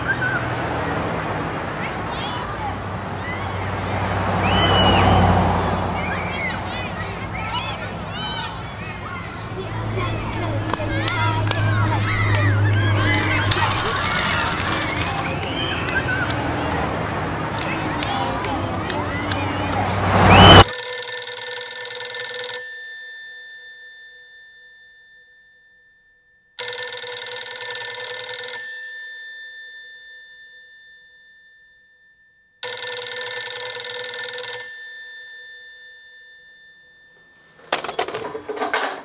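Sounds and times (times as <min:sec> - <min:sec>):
telephone bell ringing: 0:10.0 - 0:16.1, 0:20.5 - 0:39.0.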